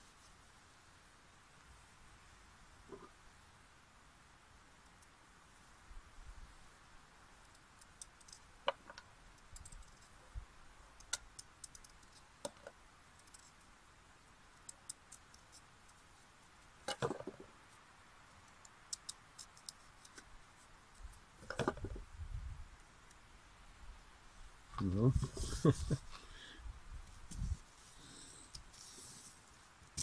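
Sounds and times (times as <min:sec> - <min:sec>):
peeling clicks and scrapes: 0:07.5 - 0:10.2, 0:11.0 - 0:13.6, 0:14.6 - 0:16.0, 0:18.4 - 0:22.0.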